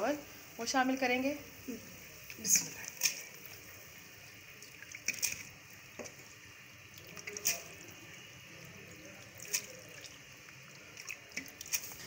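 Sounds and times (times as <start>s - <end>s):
rice splashing into water: 2.2s - 3.8s, 4.5s - 6.2s, 6.9s - 12.0s.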